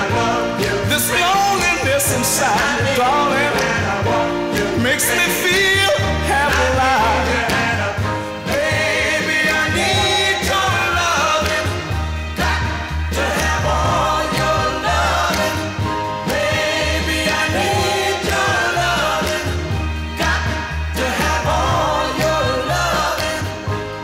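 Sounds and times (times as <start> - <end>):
soul record with singer: 0.0 - 24.0.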